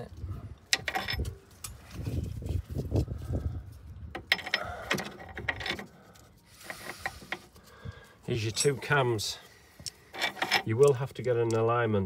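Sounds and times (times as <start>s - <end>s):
metallic clicks and knocks from tools: 4.1s - 5.9s, 9.8s - 11.7s.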